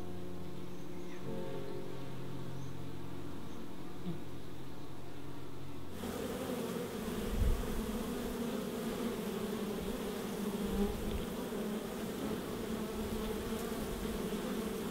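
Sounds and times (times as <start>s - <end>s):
bees buzzing: 5.8s - 14.9s.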